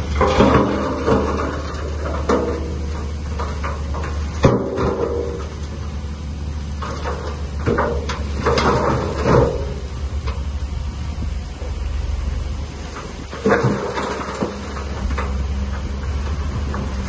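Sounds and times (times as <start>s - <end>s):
bulldozer engine drone: 0.0s - 17.0s
steel tracks clanking and creaking: 0.0s - 17.0s.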